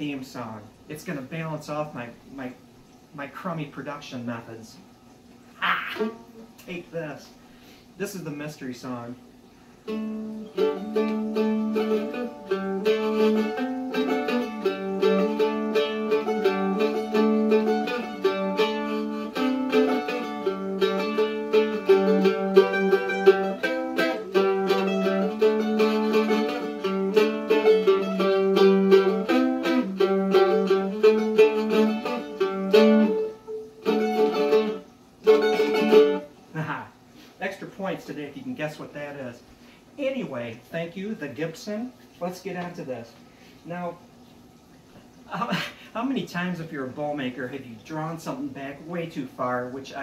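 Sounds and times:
mandolin picked melody: 0:09.9 - 0:36.4.

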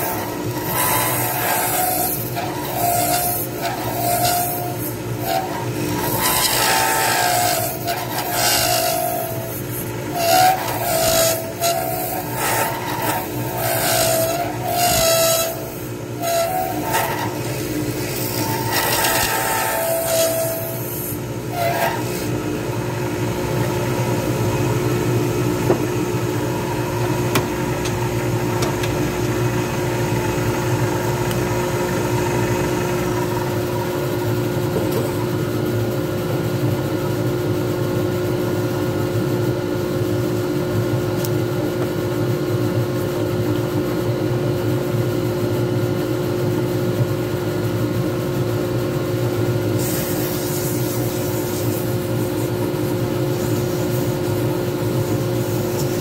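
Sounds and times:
turning tool scraping on lathe: 0:00.0 - 0:22.4
lathe motor hum: 0:00.0 - 0:35.4.

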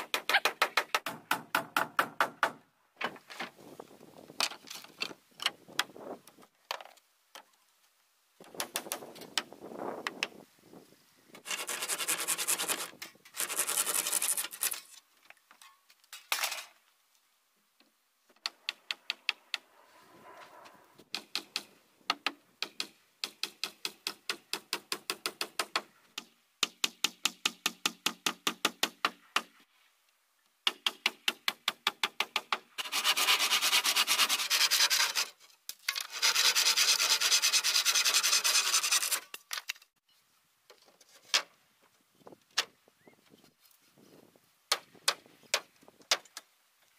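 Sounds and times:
tool scraping along wood: 0:11.4 - 0:14.8, 0:32.8 - 0:39.3.

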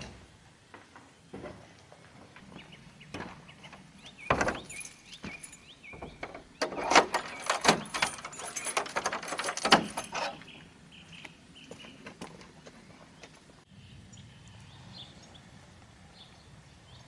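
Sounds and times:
wooden barn door thud: 0:03.1 - 0:10.3
metallic clicking and rattling: 0:03.2 - 0:10.5.

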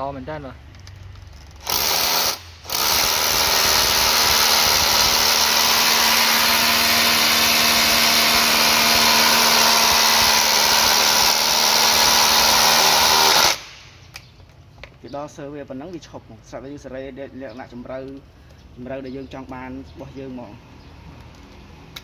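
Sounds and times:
rotary hammer drilling into concrete: 0:01.4 - 0:13.8.

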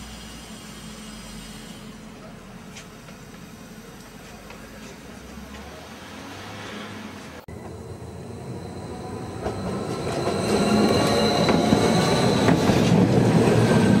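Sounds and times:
train wheels rumbling: 0:06.6 - 0:14.0.

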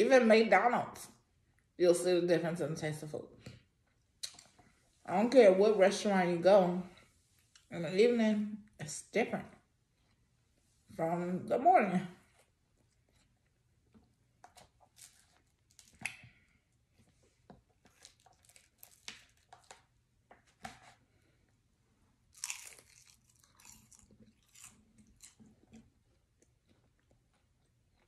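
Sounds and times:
person chewing crunchy food: 0:12.4 - 0:20.0, 0:22.3 - 0:28.0.

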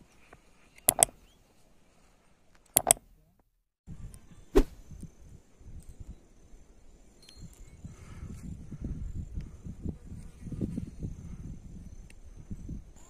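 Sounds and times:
mouse clicks: 0:00.8 - 0:01.2, 0:02.8 - 0:03.0
wind rumble on microphone: 0:03.9 - 0:13.0.

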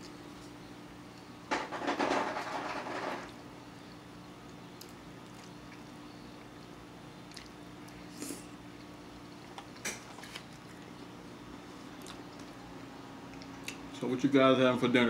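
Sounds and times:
steady low hum: 0:00.0 - 0:15.0
faint chewing: 0:04.4 - 0:14.0.

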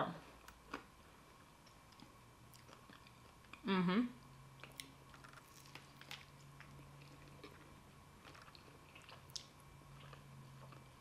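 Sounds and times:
chewing crunches: 0:04.6 - 0:11.0.

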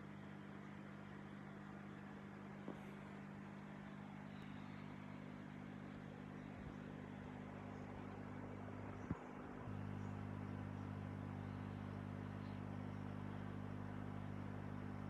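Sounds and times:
aquarium pump humming: 0:00.0 - 0:15.0.

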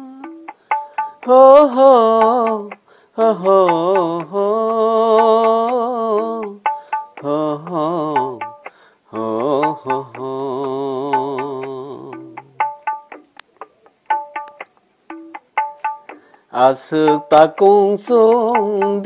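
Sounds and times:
person singing a slow chant: 0:00.0 - 0:00.6, 0:01.2 - 0:12.6, 0:16.5 - 0:19.0.

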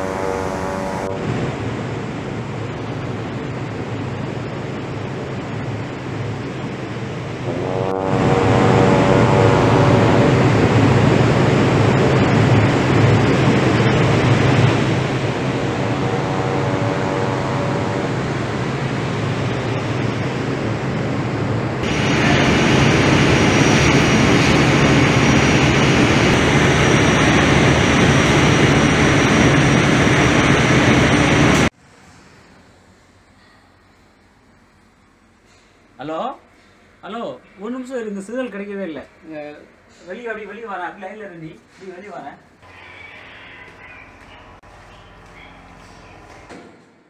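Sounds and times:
large diesel engines running: 0:00.0 - 0:31.7
low hum: 0:00.0 - 0:31.7
rushing noise aboard ship: 0:00.0 - 0:36.0.

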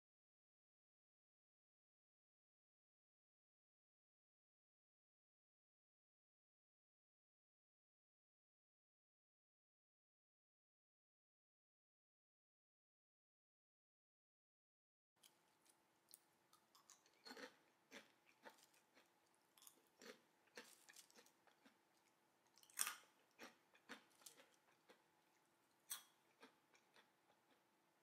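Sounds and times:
fingers crunching through popcorn: 0:15.2 - 0:25.1
faint steady hum: 0:15.2 - 0:28.0.

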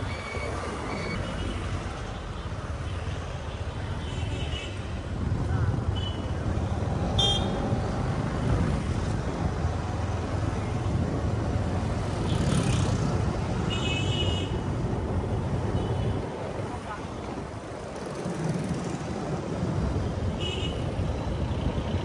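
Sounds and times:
road traffic rumble: 0:00.0 - 0:22.0.

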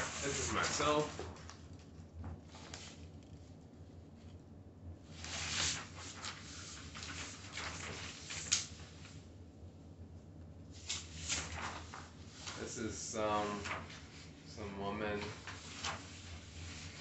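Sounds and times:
paper sheets rustling: 0:00.0 - 0:01.8, 0:02.4 - 0:03.6, 0:05.1 - 0:09.2, 0:10.8 - 0:17.0
sharp paper snap: 0:07.1 - 0:08.7.

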